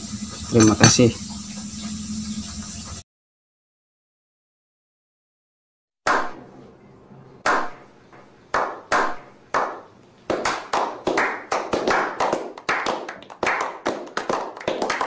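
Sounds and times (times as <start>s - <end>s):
group hand clapping: 8.5s - 15.0s.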